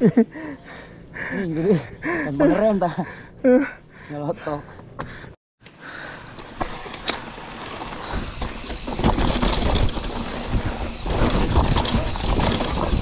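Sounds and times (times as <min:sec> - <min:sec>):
bike tyres on dirt: 0:05.8 - 0:13.0
bike knocking and rattling: 0:06.0 - 0:13.0.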